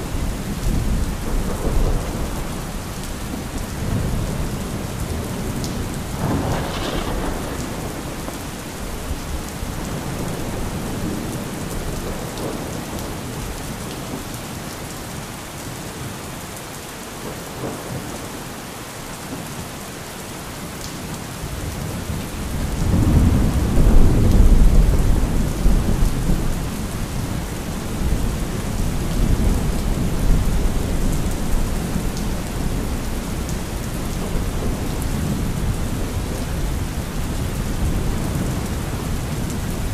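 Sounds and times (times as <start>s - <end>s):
steady rain: 0.0s - 39.9s
rolling thunder: 0.2s - 13.2s, 21.6s - 39.9s.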